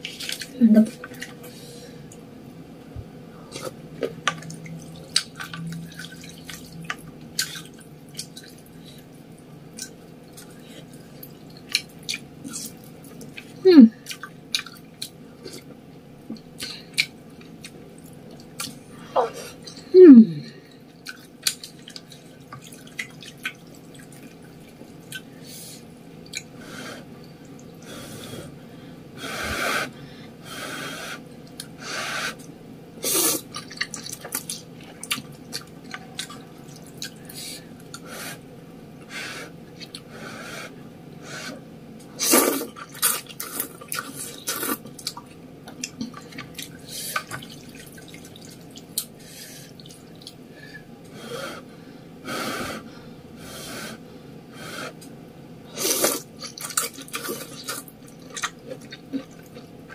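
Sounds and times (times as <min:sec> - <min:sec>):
wet chewing and mouth clicks: 0:03.5 - 0:08.8, 0:09.7 - 0:15.7, 0:20.9 - 0:25.3, 0:33.4 - 0:38.0, 0:56.0 - 0:59.9
slurping noodles: 0:42.2 - 0:44.8, 0:55.7 - 0:57.9.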